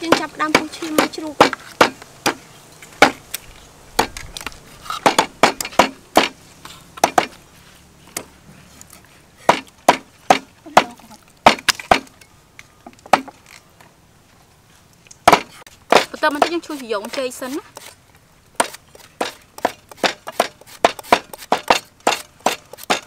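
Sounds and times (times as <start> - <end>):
cleaver chopping meat on wood: 0.0 - 2.4, 3.0 - 3.2, 5.0 - 6.4, 7.0 - 7.4, 9.4 - 12.1, 15.2 - 17.9, 18.6 - 23.0.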